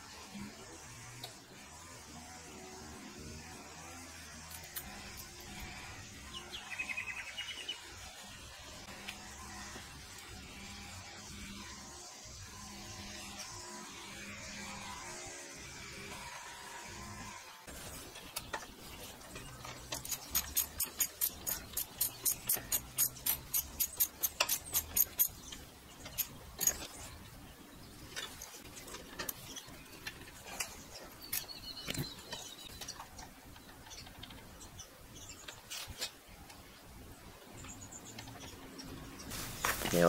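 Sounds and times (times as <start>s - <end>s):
ratchet wrench clicking: 19.8s - 25.5s.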